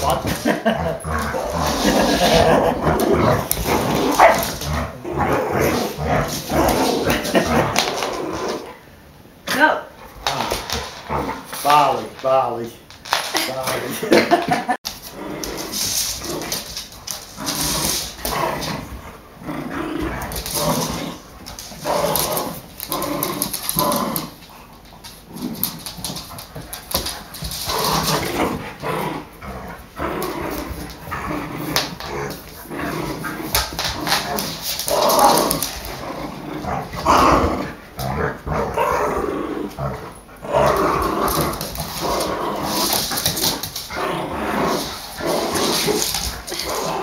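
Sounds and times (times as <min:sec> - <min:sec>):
dogs growling: 0:00.0 - 0:08.9, 0:10.0 - 0:12.0, 0:15.0 - 0:47.0.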